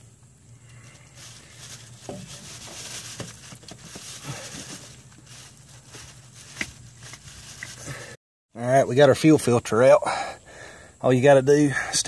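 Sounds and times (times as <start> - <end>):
plastic bag crinkling: 0.8 - 8.2.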